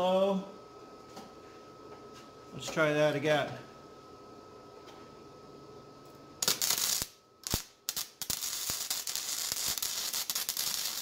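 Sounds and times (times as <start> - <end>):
welding arc crackling: 6.4 - 11.0
welding arc pop: 6.4 - 11.0.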